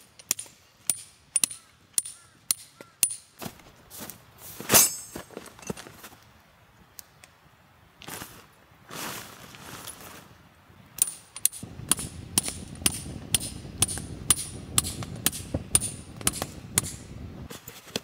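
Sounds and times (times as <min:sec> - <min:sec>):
hammer striking metal tent peg: 0:00.2 - 0:03.3, 0:04.7 - 0:05.2, 0:11.0 - 0:17.1.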